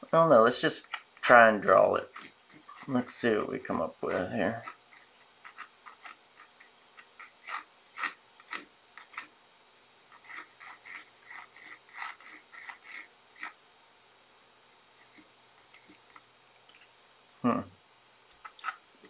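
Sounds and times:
pencil scratching on paper: 1.2s - 14.1s, 14.7s - 16.2s.

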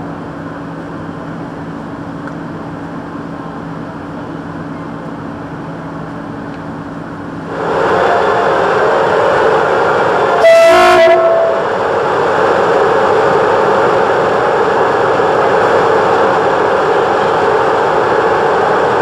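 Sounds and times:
train running: 0.0s - 19.0s
train horn blast: 7.9s - 9.1s, 10.2s - 11.8s.

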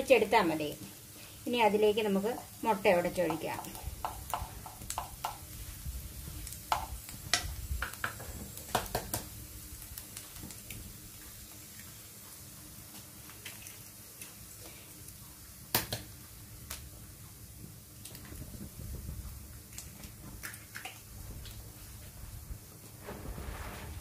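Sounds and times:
faint sizzle: 0.0s - 24.0s
eggs cracked on pan: 3.3s - 5.4s, 6.7s - 9.3s
spatula scraping frying pan: 23.0s - 24.0s.

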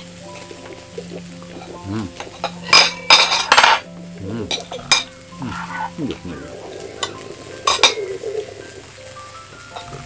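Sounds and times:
cutlery scraping on ceramic plate: 2.8s - 3.8s.

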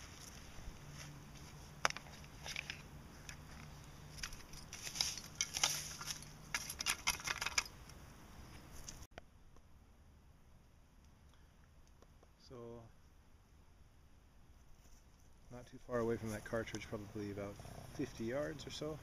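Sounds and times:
trowel scraping leaves and soil: 0.0s - 7.1s.

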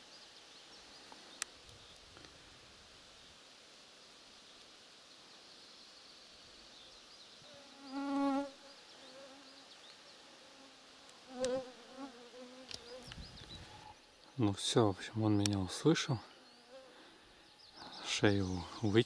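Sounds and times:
flying insect buzzing: 7.4s - 14.1s.

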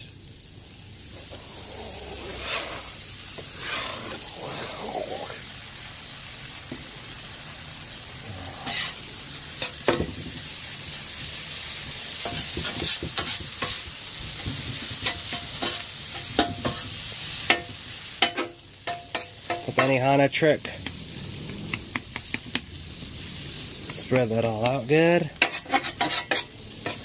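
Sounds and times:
food sizzling on griddle: 0.0s - 27.0s
metal spatula scraping griddle: 1.0s - 5.3s, 8.6s - 10.0s, 12.2s - 14.0s, 14.8s - 20.0s, 25.2s - 27.0s.

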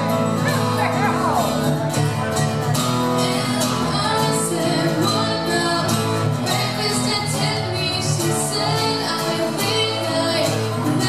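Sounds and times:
acoustic guitars strumming: 0.0s - 11.0s
woman singing through a microphone: 3.1s - 11.0s.

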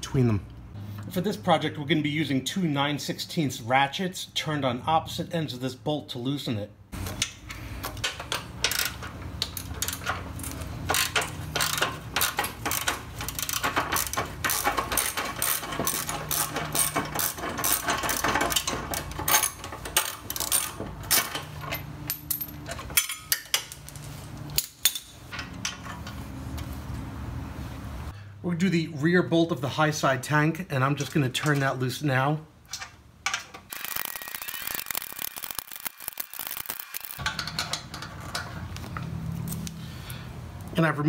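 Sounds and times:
socket ratchet clicking: 33.7s - 37.3s.

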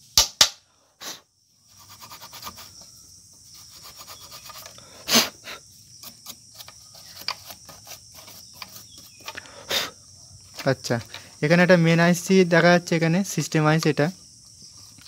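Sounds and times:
short breathy burst: 0.7s - 1.3s, 4.8s - 5.6s, 9.3s - 10.0s
brush rubbing on metal: 1.6s - 4.7s, 6.0s - 9.3s.

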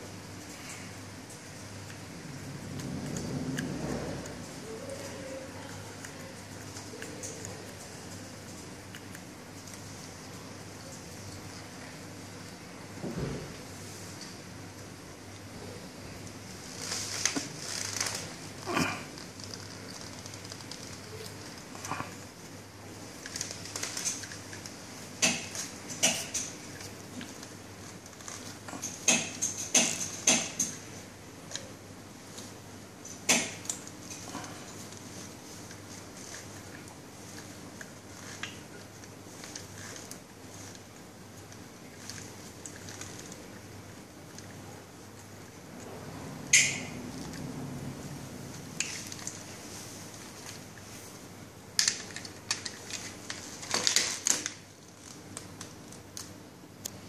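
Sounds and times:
hand tool clicking and rattling: 28.8s - 30.8s.

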